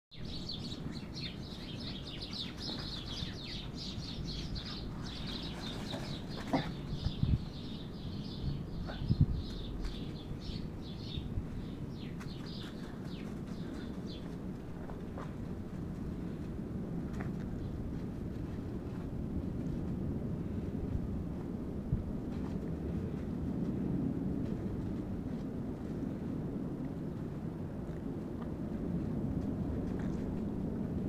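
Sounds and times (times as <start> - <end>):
sparrows chirping: 0.1 - 14.4.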